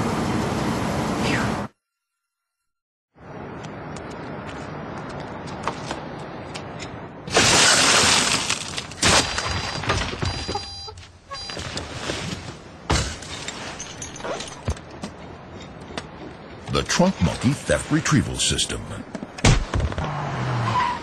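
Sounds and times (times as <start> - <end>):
glass shattering: 7.3 - 10.5, 12.9 - 14.8.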